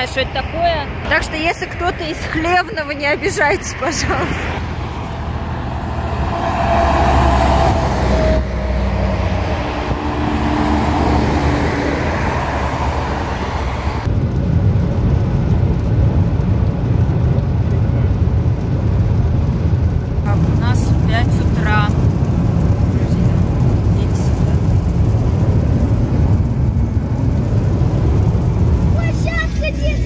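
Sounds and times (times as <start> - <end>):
highway traffic passing: 0.0 - 30.0
road noise inside moving car: 0.0 - 30.0
steady tone from passing vehicle: 0.2 - 14.1.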